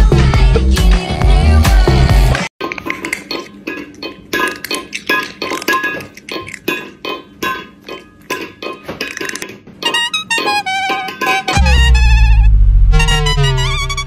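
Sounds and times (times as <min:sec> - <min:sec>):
light music: 0:09.8 - 0:14.0.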